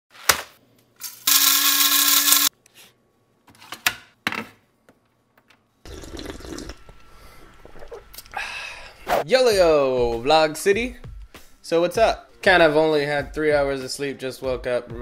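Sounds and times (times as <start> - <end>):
small electric motor whirring: 1.2 - 2.5.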